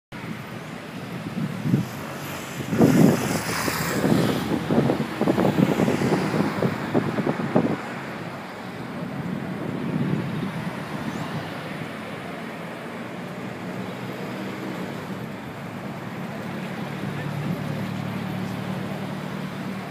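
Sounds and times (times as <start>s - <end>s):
city street traffic: 0.1s - 19.9s
low rumbling of passing vehicles: 0.2s - 19.9s.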